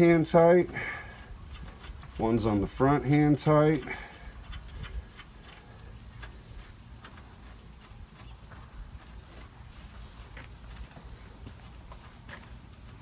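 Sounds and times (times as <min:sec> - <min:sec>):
high falling chirp: 0:09.2 - 0:10.4.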